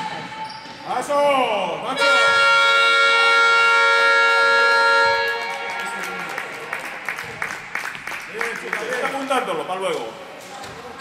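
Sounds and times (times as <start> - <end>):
voices on the court: 0.0 - 11.0
arena horn long electronic tone: 1.9 - 6.4.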